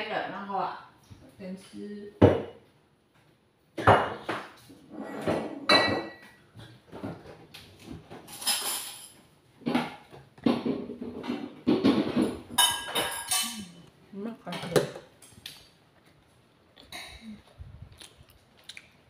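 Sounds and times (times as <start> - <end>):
dishes and utensils clinking: 3.8 - 15.4.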